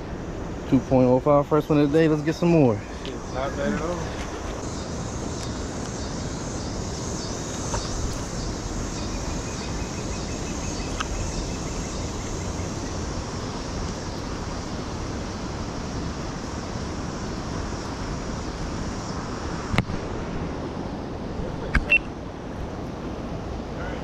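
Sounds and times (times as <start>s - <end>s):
river rushing: 0.0s - 24.0s.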